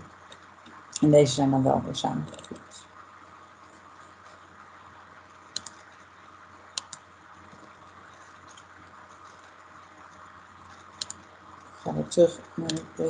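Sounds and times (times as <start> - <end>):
faint steady hiss: 0.0 - 13.0
mouse clicking: 5.5 - 5.9, 6.7 - 7.8, 10.7 - 11.3.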